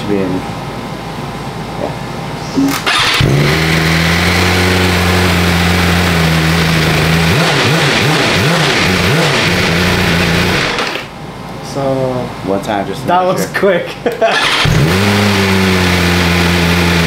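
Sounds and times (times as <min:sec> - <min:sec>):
motorcycle engine idling and revving: 0:02.8 - 0:11.1, 0:14.3 - 0:17.0.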